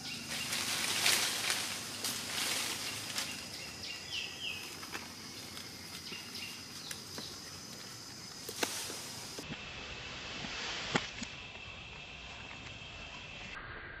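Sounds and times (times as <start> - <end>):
bird chirps: 0.0 - 0.7, 2.6 - 7.6
leafy branches rustling: 0.0 - 9.4
high insect drone: 0.0 - 13.6.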